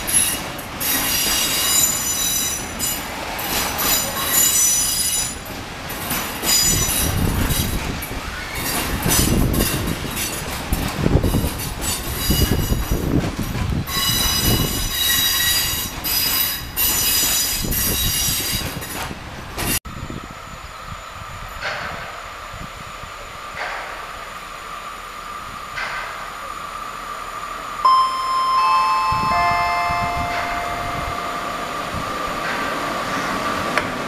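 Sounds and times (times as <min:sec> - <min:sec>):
freight train rumble: 0:00.0 - 0:34.0
train wheels squealing: 0:00.1 - 0:05.4, 0:06.4 - 0:10.4, 0:11.3 - 0:13.0, 0:13.9 - 0:19.0.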